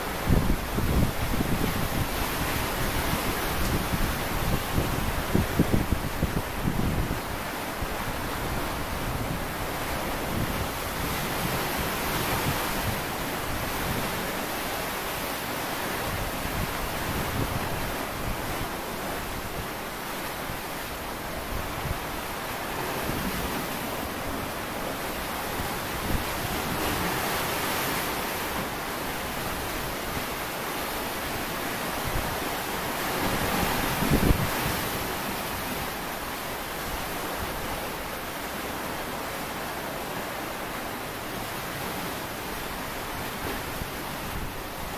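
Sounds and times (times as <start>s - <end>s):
wind buffeting microphone: 0.0s - 14.3s, 32.0s - 35.7s
sea waves washing onto shore: 0.0s - 44.9s.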